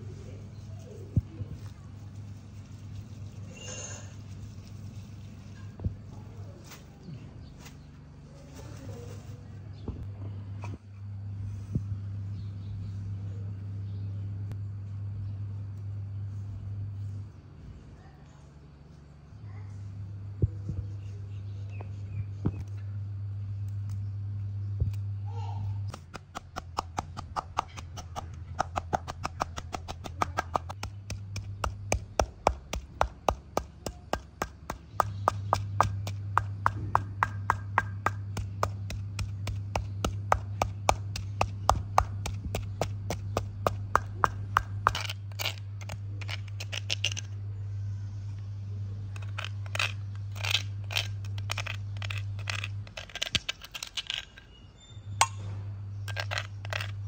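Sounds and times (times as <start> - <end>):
low steady hum: 0.0 - 57.0
pestle pounding in stone mortar: 25.9 - 46.8
metal spoon scraping stone bowl: 56.1 - 57.0.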